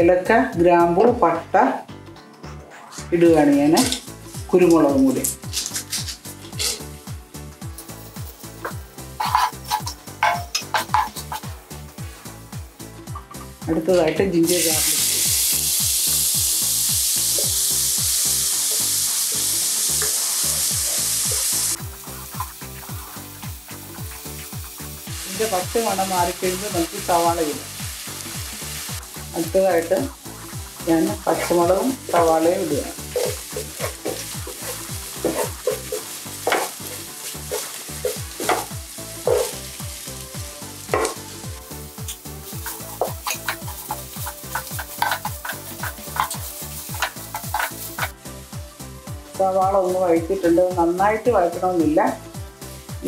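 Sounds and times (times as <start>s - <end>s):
background music with steady beat: 0.0s - 53.0s
garlic and ginger sizzling in oil: 3.5s - 53.0s
wooden spatula scraping pot: 9.2s - 10.0s, 30.8s - 39.6s, 42.4s - 48.1s.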